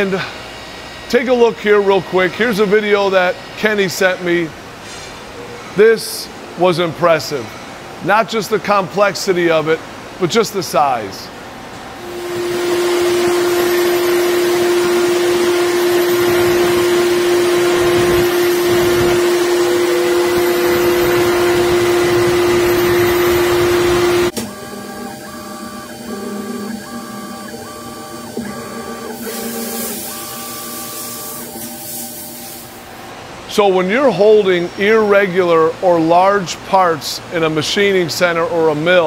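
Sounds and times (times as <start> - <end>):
quiet machine sound: 0.0 - 39.0
mill cutter steady tone: 11.7 - 36.1
coolant spray hissing: 29.2 - 32.8.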